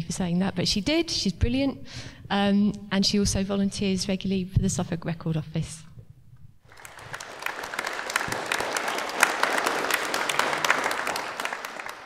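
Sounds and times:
audience applauding: 0:06.7 - 0:12.0.

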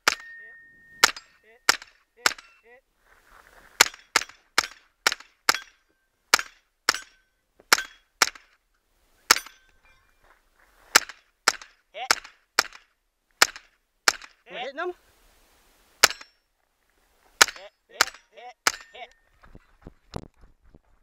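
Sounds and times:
steel plates ringing: 0:00.0 - 0:02.7, 0:09.3 - 0:10.2, 0:17.4 - 0:19.3.

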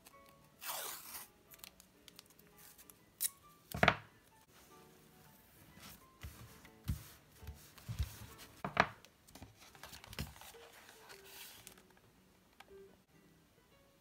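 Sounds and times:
notebook scrapes and taps: 0:05.8 - 0:08.7
paper rustling: 0:05.8 - 0:08.7, 0:09.3 - 0:12.0.

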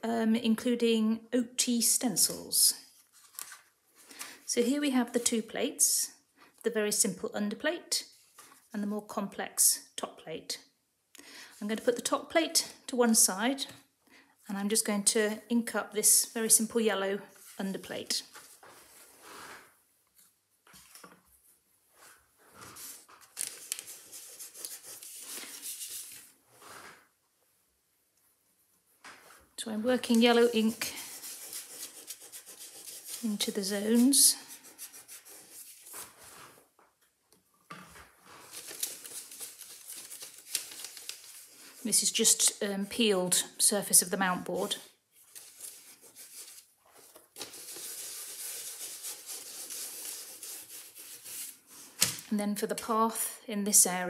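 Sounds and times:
scratchy hand rubbing strokes: 0:21.8 - 0:27.0, 0:28.4 - 0:36.7, 0:45.4 - 0:52.0.

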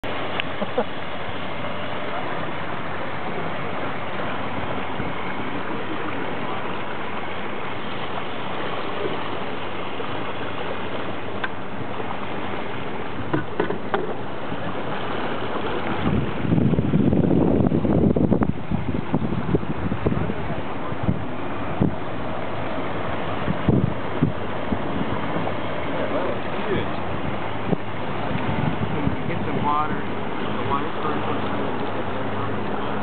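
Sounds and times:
boat churning water: 0:00.0 - 0:33.0
wind: 0:00.0 - 0:33.0
light knocks: 0:13.3 - 0:14.2.

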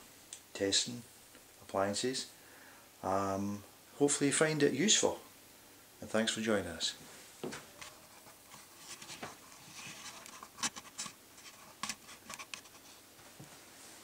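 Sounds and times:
multimeter handling rustling: 0:07.8 - 0:12.9.

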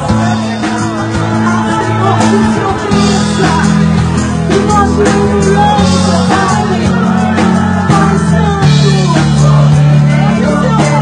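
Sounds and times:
steady beat: 0:00.0 - 0:11.0
woman singing into a microphone: 0:04.5 - 0:11.0.

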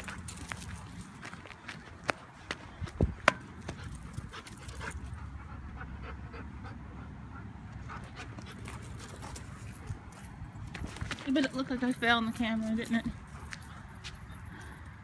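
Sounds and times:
puppy panting: 0:03.6 - 0:10.0.

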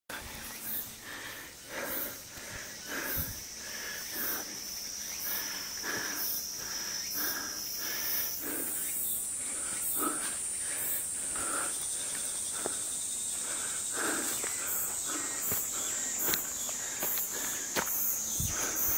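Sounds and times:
insects buzzing: 0:00.1 - 0:18.9.

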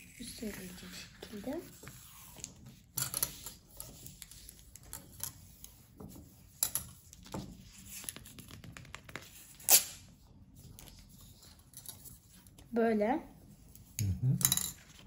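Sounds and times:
paper folding and rustling: 0:00.3 - 0:12.7.

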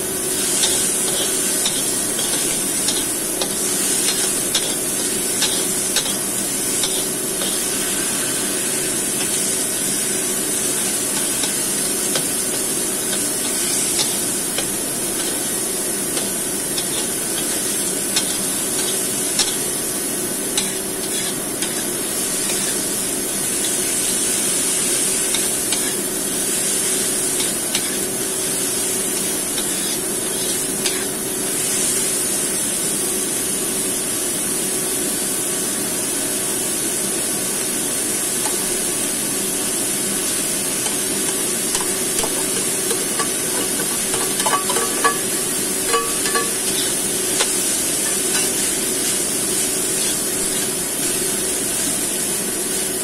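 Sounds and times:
vegetables and rice sizzling in wok: 0:00.0 - 0:53.0
metal spatula scraping wok: 0:20.6 - 0:22.8, 0:41.3 - 0:48.8
spatula clicking against pan: 0:41.3 - 0:46.6.

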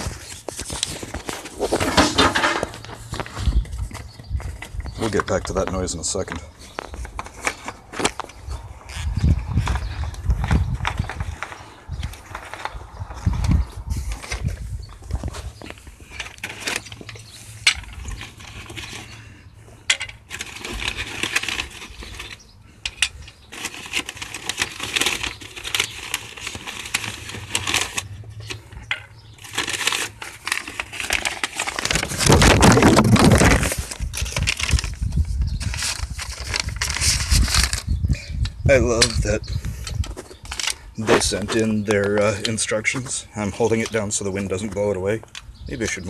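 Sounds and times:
wind buffeting microphone: 0:02.9 - 0:05.9, 0:08.2 - 0:15.7, 0:31.9 - 0:41.6
metal and plastic clinking: 0:19.8 - 0:31.9.

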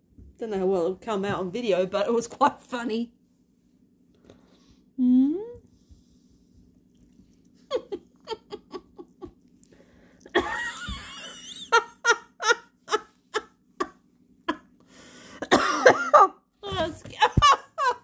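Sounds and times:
person laughing: 0:07.7 - 0:09.4, 0:10.3 - 0:14.8, 0:17.2 - 0:18.0.

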